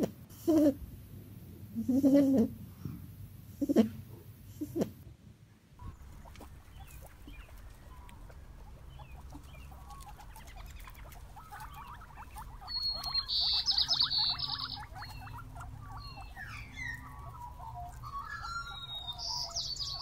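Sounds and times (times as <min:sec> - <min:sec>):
guinea pigs chewing grass: 0:05.8 - 0:20.0.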